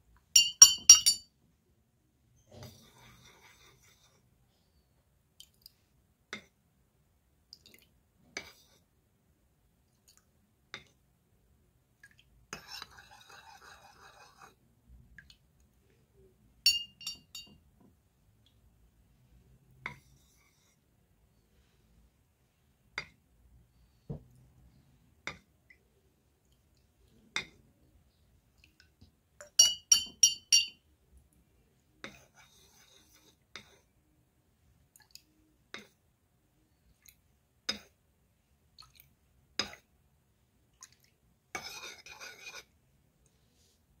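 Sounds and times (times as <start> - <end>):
metal spoon clinking on bowls: 0.4 - 1.3, 16.7 - 17.6, 29.4 - 30.8.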